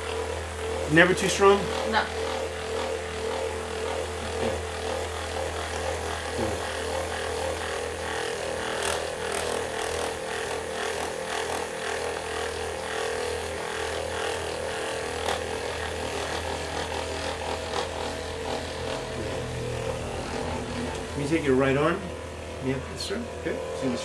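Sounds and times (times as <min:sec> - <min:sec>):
massage gun humming: 0:00.0 - 0:24.0.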